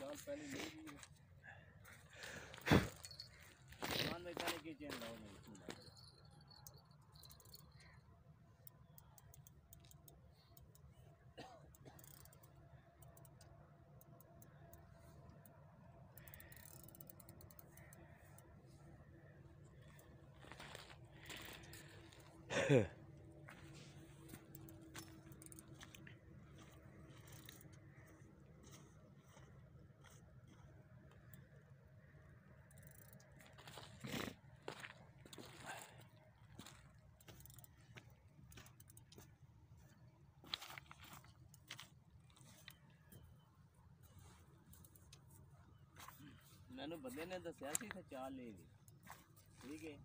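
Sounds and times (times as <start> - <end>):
soft scattered clicks: 4.3 - 22.4, 23.1 - 33.9, 36.4 - 50.0
fishing reel ticking: 5.8 - 11.0, 11.7 - 18.6, 24.3 - 28.2, 32.5 - 33.5, 37.2 - 39.3.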